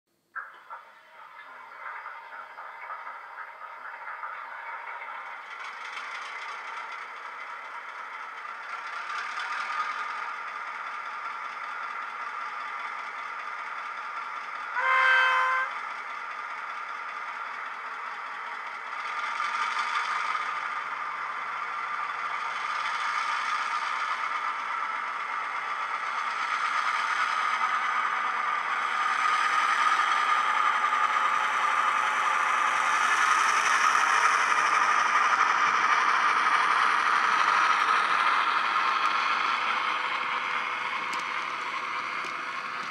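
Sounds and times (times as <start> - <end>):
diesel engine idling: 2.3 - 42.9
locomotive horn: 14.7 - 15.8
model wagons clattering on track: 33.4 - 42.9.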